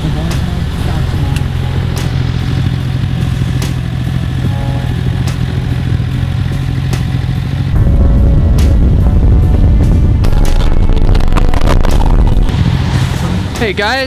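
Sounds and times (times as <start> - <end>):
loud music: 0.0 - 6.6, 7.8 - 12.6
motorcycle engine idling: 0.0 - 10.7.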